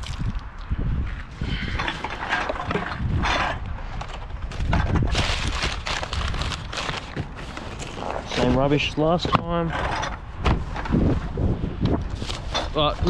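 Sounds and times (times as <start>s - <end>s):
rummaging in wheelie bin: 1.8s - 10.2s
plastic bag rustling: 4.4s - 8.9s
paper bag crinkling: 4.5s - 8.7s.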